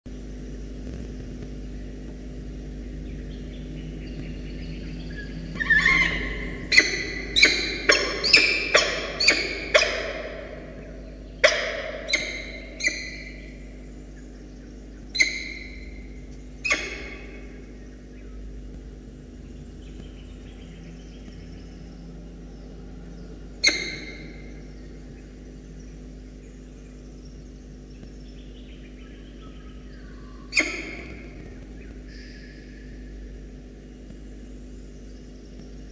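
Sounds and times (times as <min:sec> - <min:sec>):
falcon harsh calls: 0:05.1 - 0:13.8, 0:15.1 - 0:17.8, 0:23.4 - 0:25.3, 0:30.4 - 0:33.3.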